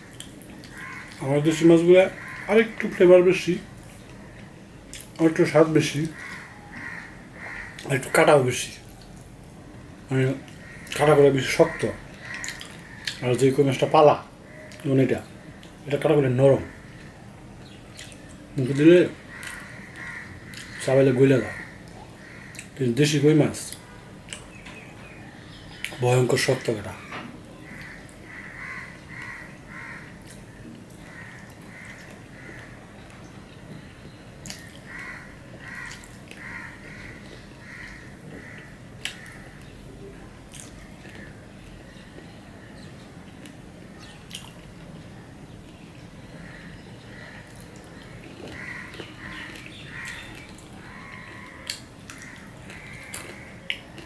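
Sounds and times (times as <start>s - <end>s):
crow cawing: 0.6s - 3.0s, 6.0s - 8.2s, 10.6s - 13.3s, 14.4s - 15.5s, 19.1s - 22.7s, 27.0s - 32.9s, 34.6s - 39.7s, 46.3s - 53.7s
bird calling: 0.6s - 3.2s, 5.6s - 8.1s, 23.8s - 40.2s, 45.7s - 54.0s.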